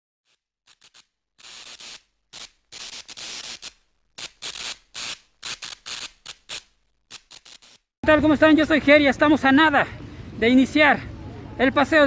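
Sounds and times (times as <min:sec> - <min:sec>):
television static bursts: 0:00.7 - 0:07.8.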